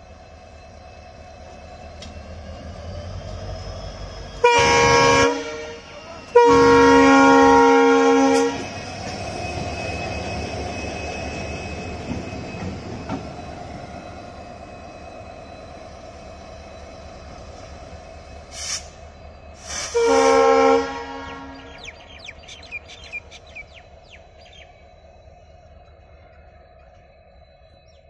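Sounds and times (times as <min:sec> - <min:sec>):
locomotive engine rumble: 0:00.0 - 0:28.0
train wheels on rails: 0:00.0 - 0:28.0
locomotive horn blasts: 0:04.4 - 0:08.8, 0:19.8 - 0:21.7.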